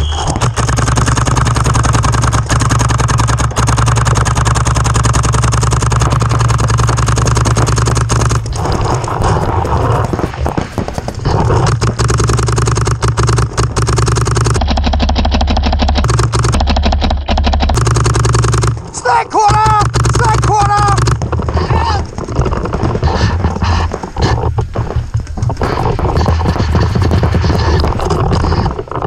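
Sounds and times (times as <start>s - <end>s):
paintball markers firing: 0.0s - 29.0s
low rumble: 1.4s - 18.9s.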